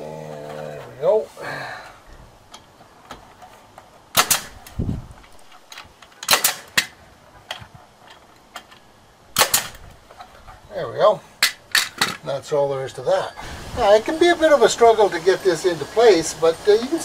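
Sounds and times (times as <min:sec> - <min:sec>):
staple gun firing: 0:04.2 - 0:04.6, 0:06.2 - 0:06.9, 0:09.4 - 0:09.8.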